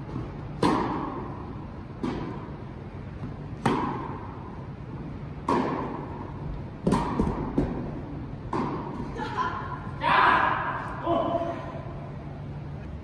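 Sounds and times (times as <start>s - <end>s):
tennis ball bouncing on court: 0.1s - 4.6s, 5.4s - 9.2s
tennis ball struck by rackets: 0.1s - 4.6s, 5.4s - 9.1s.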